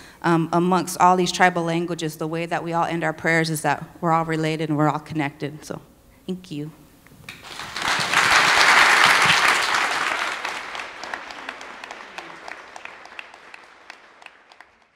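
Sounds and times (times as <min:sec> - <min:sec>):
audience applauding: 0:07.3 - 0:14.9.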